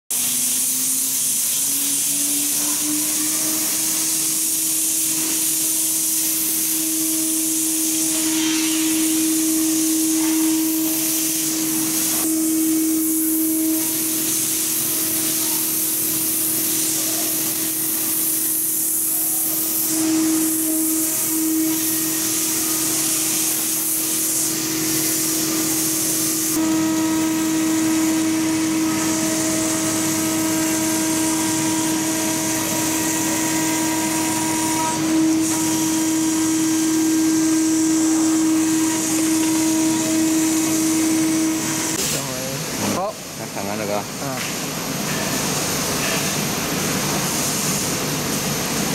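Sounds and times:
hiss of bit cutting plastic: 0.1s - 43.0s
router spindle whine: 0.2s - 15.8s, 19.8s - 42.9s.

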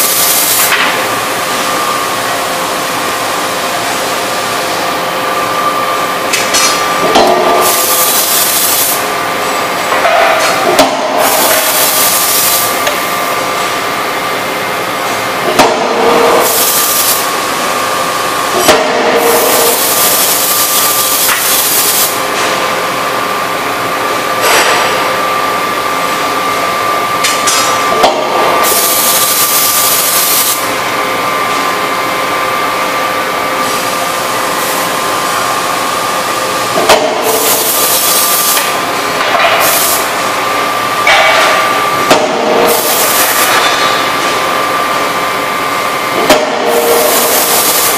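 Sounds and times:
machine hum: 0.0s - 47.9s
forging hammer strikes: 41.0s - 42.6s.

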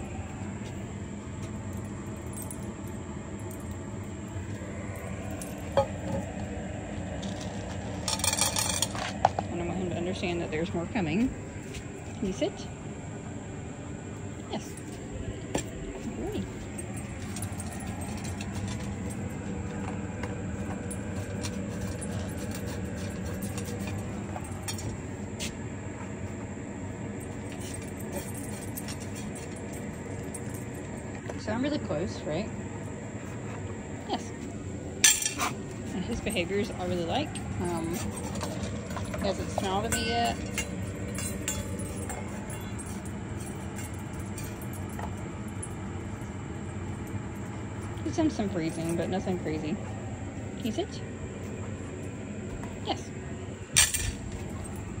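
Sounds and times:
low mechanical hum: 0.0s - 55.0s
dog eating from metal bowl: 35.0s - 46.2s.

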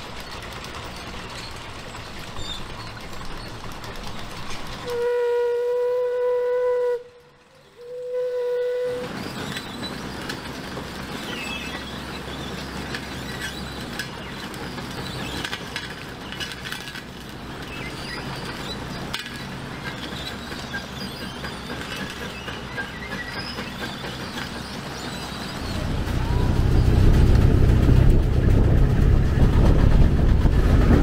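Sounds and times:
steam engine hiss and rumble: 0.0s - 31.0s
steam whistle blast: 4.8s - 9.1s.

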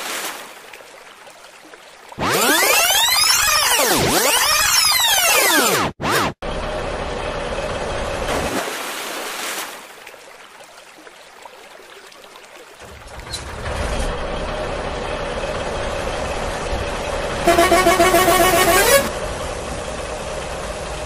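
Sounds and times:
steady engine-like drone: 6.4s - 8.4s, 13.5s - 21.0s.

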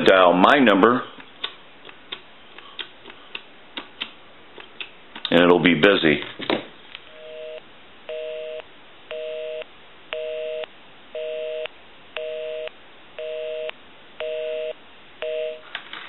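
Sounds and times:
telephone busy signal: 7.2s - 15.6s.

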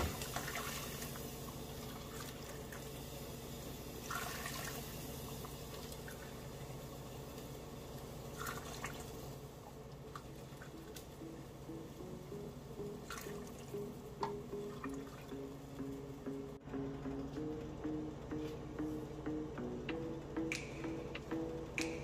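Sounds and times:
liquid sounds: 0.0s - 11.2s
simple background melody: 0.0s - 22.0s.

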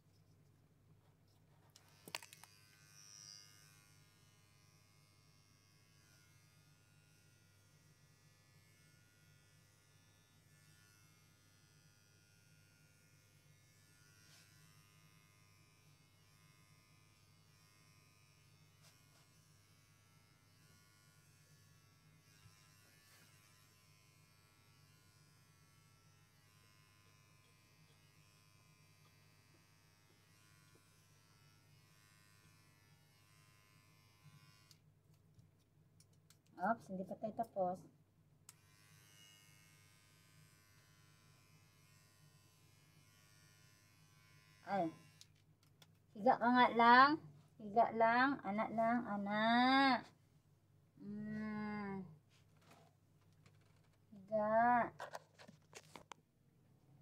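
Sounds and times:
electric hair clippers humming: 1.8s - 34.8s, 38.5s - 45.4s.

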